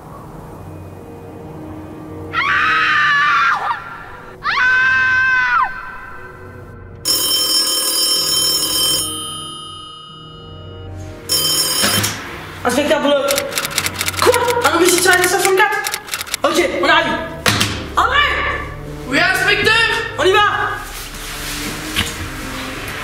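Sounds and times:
telephone ringing: 7.1 - 12.3, 13.3 - 16.4.

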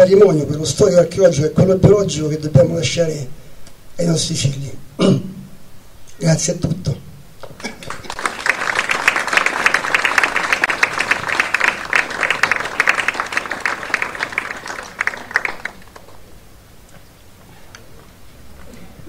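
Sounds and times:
audience applauding: 7.6 - 16.3.

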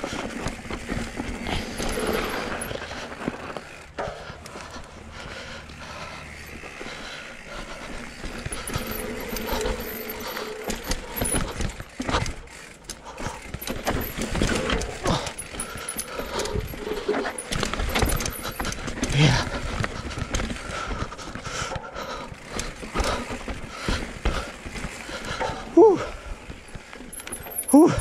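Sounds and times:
bike tyres rolling over grass: 0.0 - 21.7, 22.4 - 27.2
bike rattling over rocks: 0.0 - 28.0.

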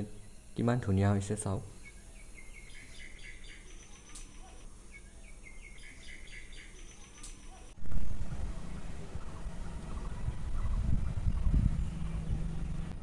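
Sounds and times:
faint low hum: 0.0 - 13.0
small bird chirping: 1.7 - 7.8.

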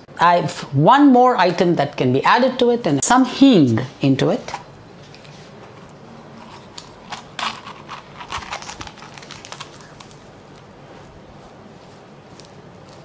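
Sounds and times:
plastic crinkling: 5.1 - 10.8.

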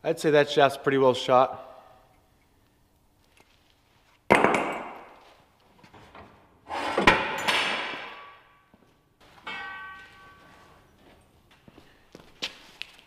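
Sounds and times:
heavy steel parts clanking: 9.3 - 10.8
metal rattle: 9.4 - 10.7.

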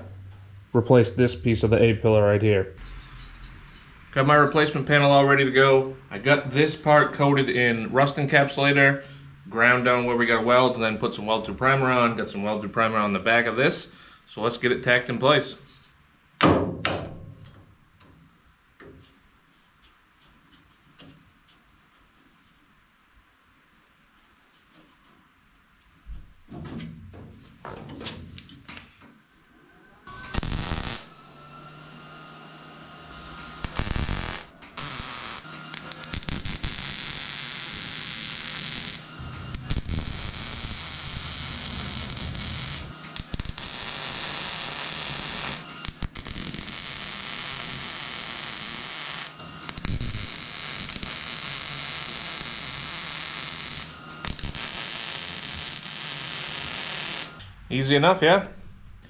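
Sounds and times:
mig welding crackling: 0.0 - 14.5, 30.1 - 57.8.

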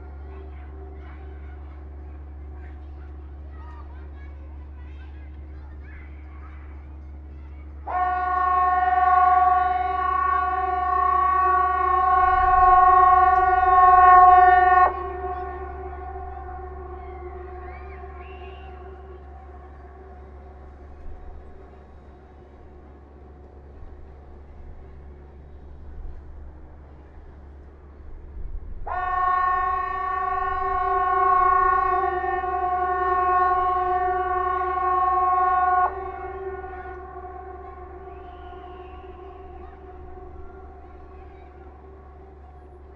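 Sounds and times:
steady siren blast: 7.8 - 22.8, 28.8 - 42.9.

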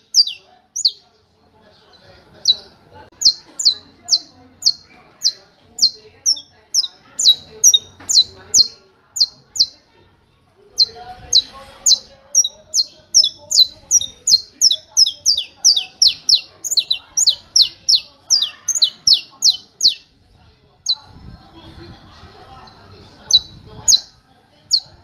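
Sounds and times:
finch singing sharp high notes: 0.0 - 1.0, 10.8 - 20.1.

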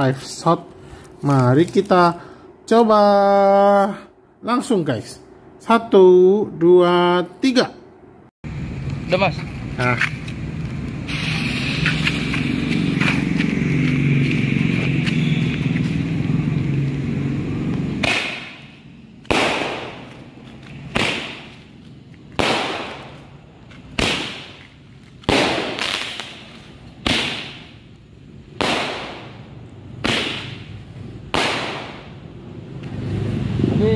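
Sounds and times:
roman candle hissing: 11.0 - 13.7
firework bangs with echo: 18.0 - 20.2, 20.8 - 21.7, 22.3 - 23.3, 23.9 - 27.8, 28.5 - 32.2.

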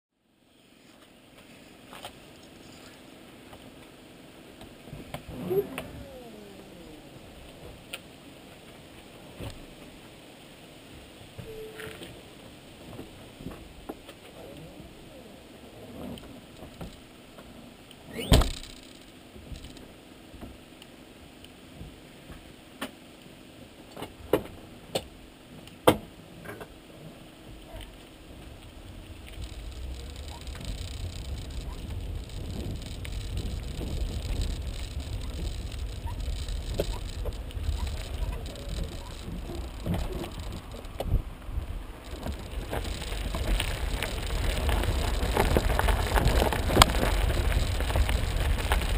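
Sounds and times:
car rolling over paving stones: 27.5 - 48.9.

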